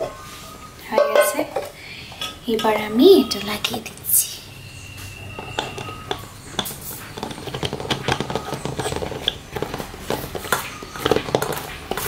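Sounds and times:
plastic cap clicking and scraping: 5.3s - 12.0s.

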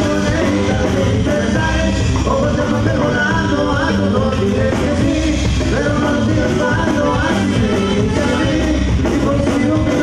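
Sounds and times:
accordion: 0.0s - 10.0s
drum kit: 0.0s - 10.0s
electric bass: 0.0s - 10.0s
guitar: 0.0s - 10.0s
person singing into a microphone: 0.0s - 10.0s
saxophone: 6.7s - 9.1s.

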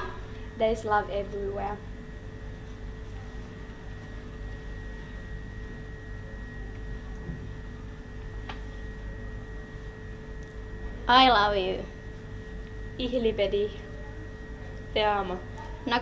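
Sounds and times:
electrical hum: 0.0s - 16.0s
faint steady whine: 0.0s - 16.0s.

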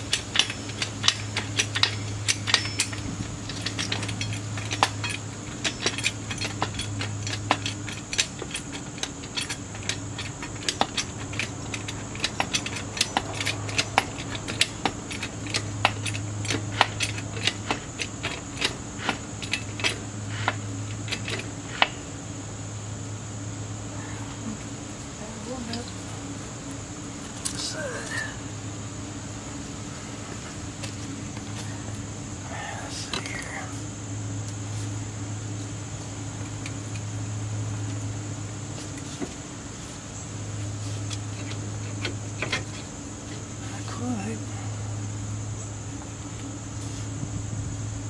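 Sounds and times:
metallic tool clicks and clinks: 0.0s - 21.4s
steady low hum: 0.0s - 48.0s.

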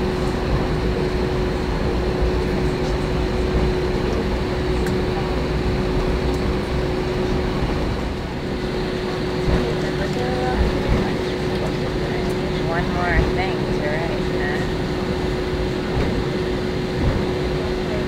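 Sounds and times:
constant hum: 0.0s - 18.0s
low engine rumble: 0.0s - 18.0s.

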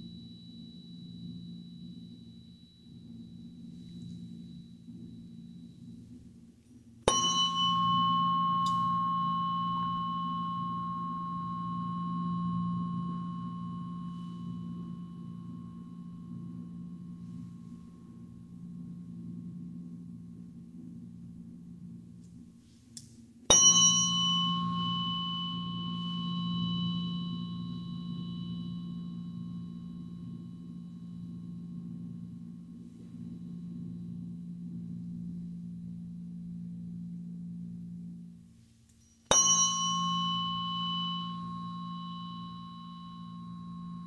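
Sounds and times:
tuning fork ringing tone: 0.0s - 6.2s, 7.0s - 20.2s, 23.5s - 44.0s
tuning fork strike knock: 7.1s - 17.4s, 23.5s - 32.4s, 39.3s - 44.0s.

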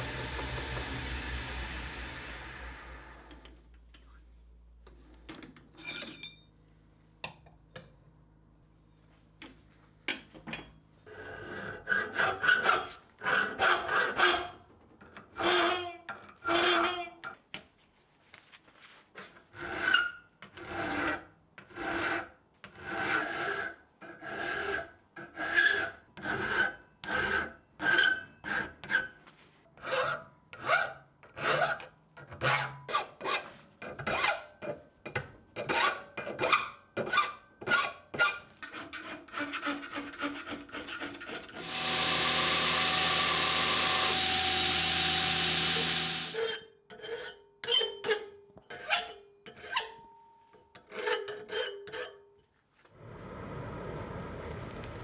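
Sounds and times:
loud humming sound: 0.0s - 3.4s, 41.6s - 46.4s
file rasping on steel: 11.1s - 14.6s, 19.5s - 29.1s, 35.6s - 50.0s.

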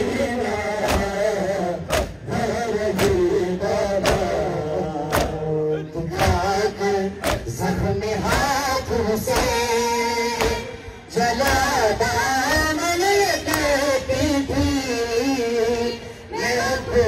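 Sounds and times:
men chanting together: 0.0s - 17.0s
chest-beating slaps: 0.8s - 1.2s, 1.9s - 2.2s, 2.9s - 3.3s, 4.0s - 5.4s, 7.2s - 7.6s, 9.3s - 9.6s, 10.4s - 10.6s, 11.4s - 11.8s.

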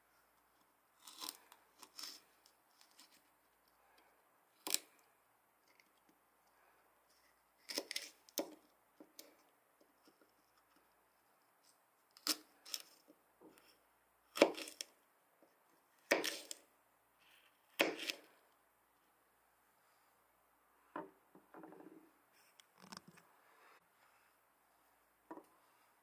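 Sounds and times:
knife cutting on plastic board: 14.3s - 14.9s, 16.1s - 16.6s, 17.7s - 18.3s.

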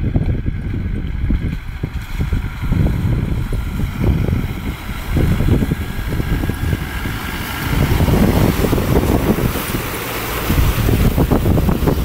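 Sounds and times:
diesel engine running: 0.0s - 12.0s
water churning around wheels: 0.0s - 12.0s
wind buffeting microphone: 0.0s - 12.0s.

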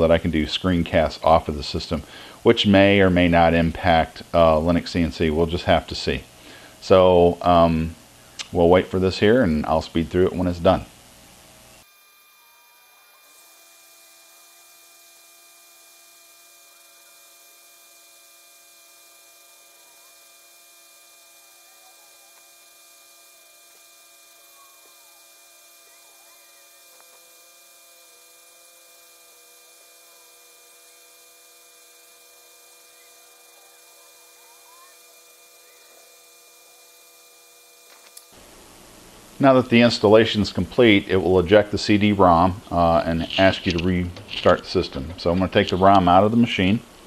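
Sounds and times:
hum of held tones: 1.8s - 38.4s
faint wavering chirps: 24.4s - 27.1s, 32.8s - 36.8s.

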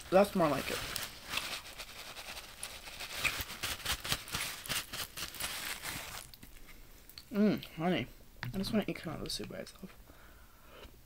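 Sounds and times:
paper napkin crinkling: 0.0s - 6.4s.

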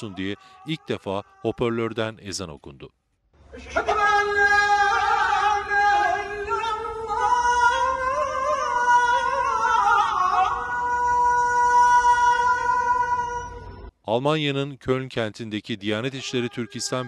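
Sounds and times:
man chanting over loudspeakers: 0.0s - 2.1s, 3.7s - 13.3s, 15.8s - 17.0s.

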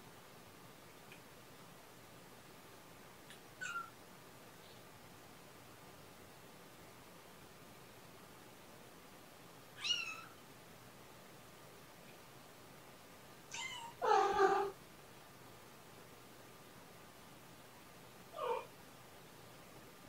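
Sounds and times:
cat mewing high-pitched: 13.5s - 14.8s.

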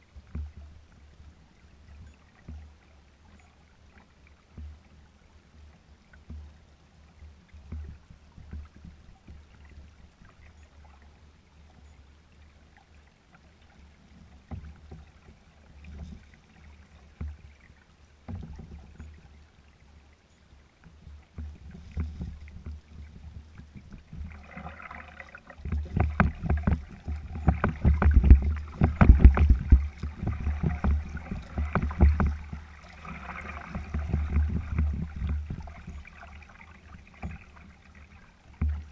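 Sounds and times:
waves lapping against a hull: 0.0s - 38.9s
wind on microphone: 25.6s - 36.2s.

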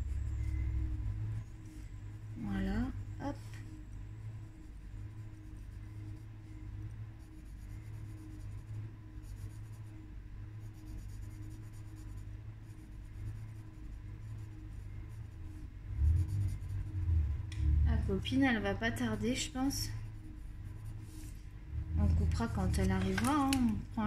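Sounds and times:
steady low hum: 0.0s - 24.0s
colouring strokes scratching paper: 4.4s - 17.2s, 17.9s - 23.8s.

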